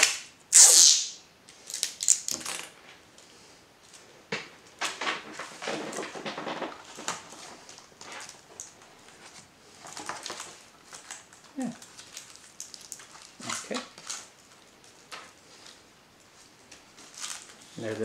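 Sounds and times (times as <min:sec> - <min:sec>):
sticky tape clicks and crackles: 0:00.0 - 0:02.7, 0:10.0 - 0:15.3
paper rustling and crinkling: 0:04.8 - 0:18.0.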